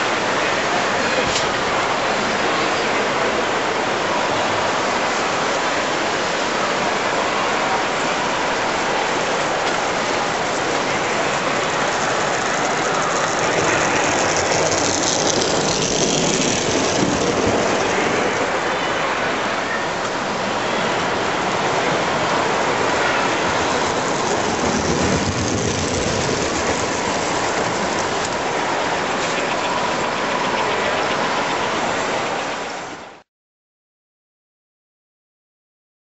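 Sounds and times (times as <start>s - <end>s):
toy trains rumbling on metal track: 8.5s - 18.8s, 21.8s - 32.1s.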